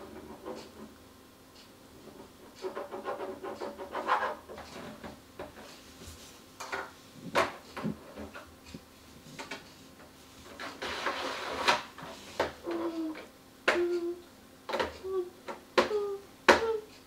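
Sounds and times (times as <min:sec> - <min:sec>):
pen scratching on drawing board: 0:02.0 - 0:04.9, 0:10.6 - 0:11.8.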